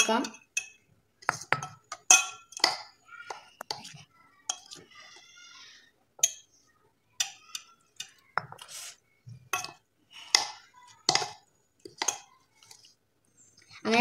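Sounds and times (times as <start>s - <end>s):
spoon clinking against bowl: 0.0s - 0.8s, 1.4s - 3.9s, 4.5s - 4.8s, 6.2s - 6.5s, 7.2s - 8.6s, 9.5s - 12.3s.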